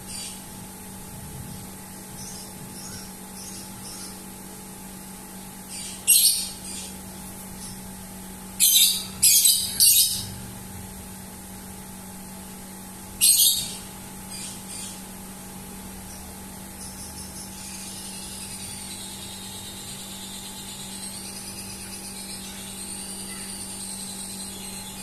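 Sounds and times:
steady low hum: 0.0 - 25.0
faint bird chirps: 1.5 - 4.3, 16.0 - 25.0.

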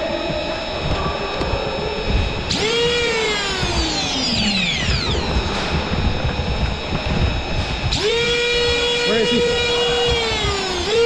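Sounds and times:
toy blaster motors whining: 0.0 - 11.0.

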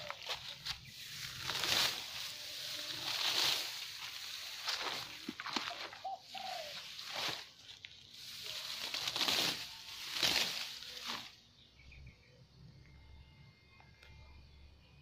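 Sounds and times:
grass being pulled up by hand: 0.0 - 11.4
bird calling: 0.0 - 12.4.

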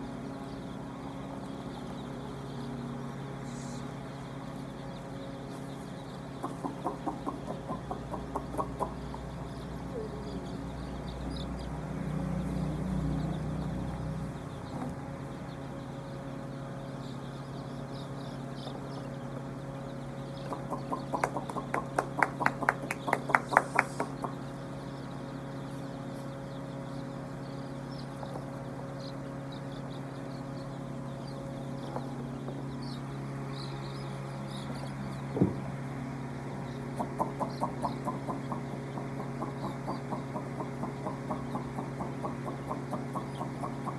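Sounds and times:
chicks peeping: 0.0 - 43.9
steady low hum: 0.0 - 43.9
thump: 35.4 - 35.6.

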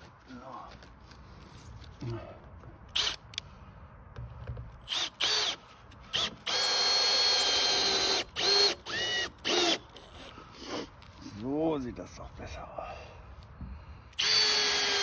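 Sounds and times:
electric drill whining: 3.0 - 3.2, 4.8 - 10.9, 14.2 - 15.0.

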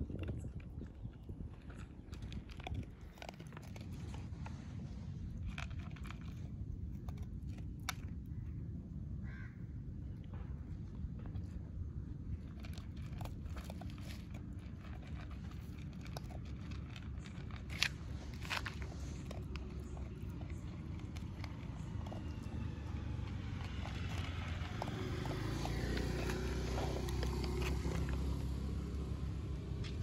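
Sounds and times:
dog chewing from plastic bowl: 0.0 - 8.3, 12.4 - 29.3
steady low rumble: 0.0 - 30.0.

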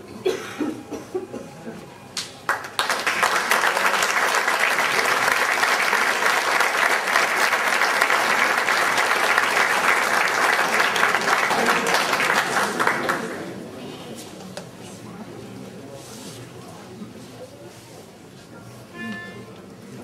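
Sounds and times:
audience clapping: 2.2 - 13.6.

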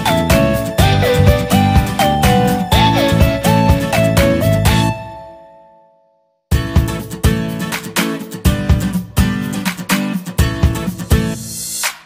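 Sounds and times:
strummed chords music: 0.0 - 5.7, 6.5 - 11.8.

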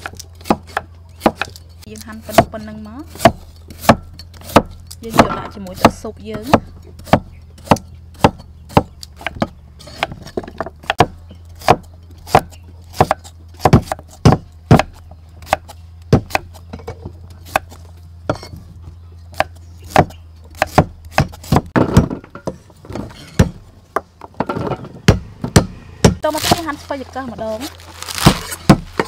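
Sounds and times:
cleaver chopping on wooden block: 0.0 - 1.6, 2.2 - 18.5, 19.3 - 22.6, 25.1 - 26.2, 28.2 - 29.0.

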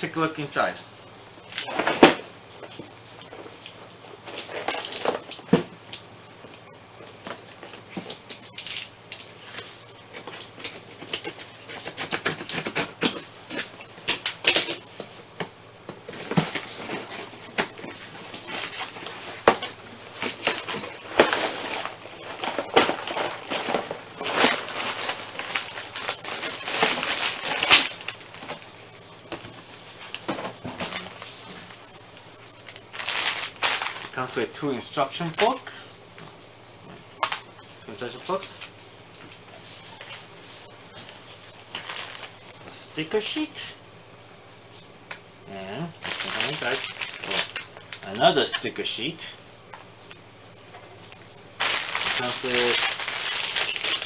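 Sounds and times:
plastic bags crinkling: 3.5 - 5.5, 7.4 - 15.0, 16.0 - 35.8, 41.6 - 43.5, 46.0 - 48.7, 51.6 - 54.0
cardboard box rustling and scraping: 16.1 - 27.8.

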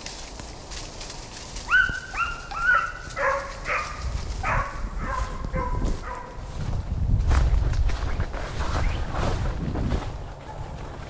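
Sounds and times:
dog yelping barks: 1.7 - 6.4.

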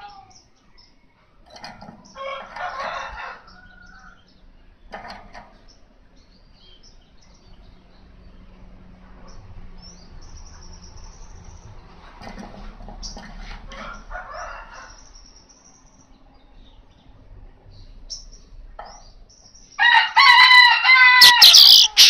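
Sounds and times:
bird chattering song: 21.2 - 22.0
thin high trill: 21.2 - 22.0.

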